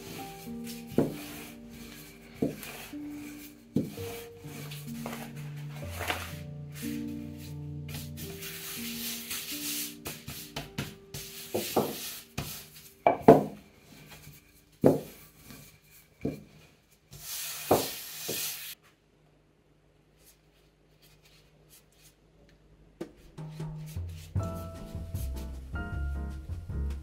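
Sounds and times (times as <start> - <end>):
rolling pin rubbing dough: 0.0 - 18.8
rolling pin knocking counter: 13.1 - 13.6, 14.8 - 15.2.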